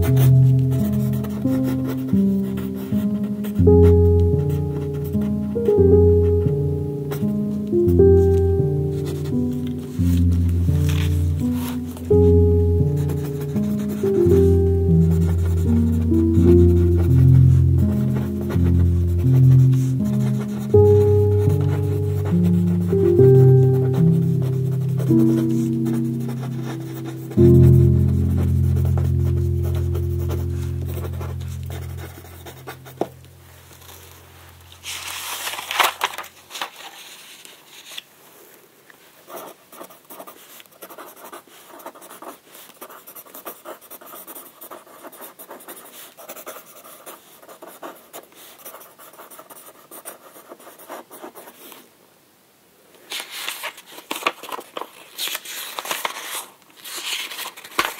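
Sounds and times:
background music: 0.0s - 33.9s
paper sheets rustling: 7.2s - 38.1s, 53.0s - 57.9s.

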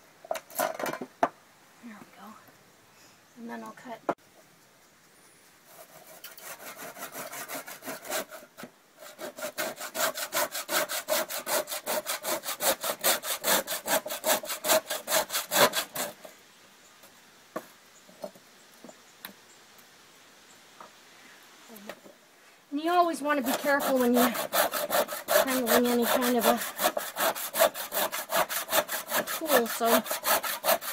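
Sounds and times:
hand saw cutting bone: 5.8s - 8.4s, 9.0s - 16.2s, 23.4s - 30.9s.

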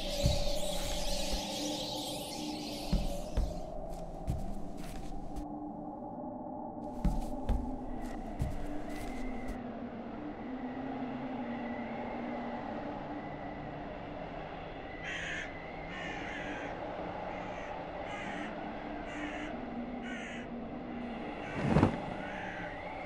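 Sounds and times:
crows cawing: 15.0s - 16.8s, 17.5s - 18.5s, 19.1s - 20.5s, 22.2s - 22.7s.

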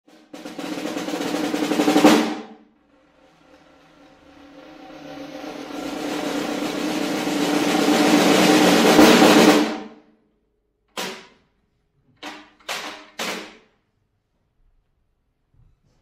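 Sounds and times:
snare drum roll: 0.1s - 10.0s
sharp snare strikes: 11.0s - 11.4s, 12.7s - 13.7s.

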